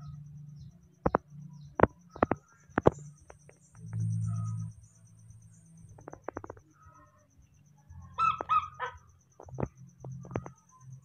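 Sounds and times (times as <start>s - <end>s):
baby monkey crying: 8.2s - 9.0s.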